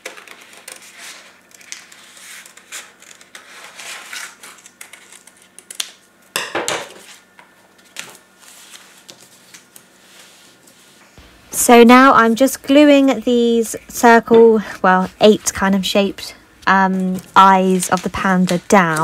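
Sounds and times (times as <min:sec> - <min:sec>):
paper rustling: 0:00.0 - 0:05.8, 0:07.0 - 0:11.0, 0:16.9 - 0:19.0
scissors snipping paper: 0:16.9 - 0:19.0.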